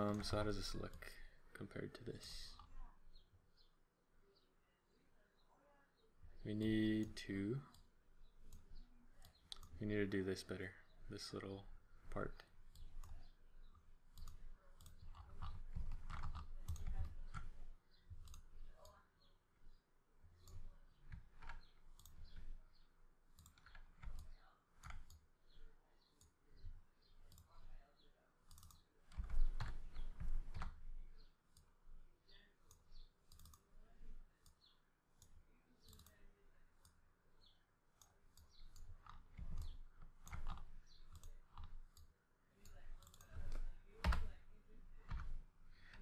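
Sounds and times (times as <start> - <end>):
mouse and keyboard clicking: 7.7 - 9.8, 12.1 - 19.0, 20.3 - 27.7, 28.5 - 31.7, 32.6 - 36.2, 36.8 - 44.4.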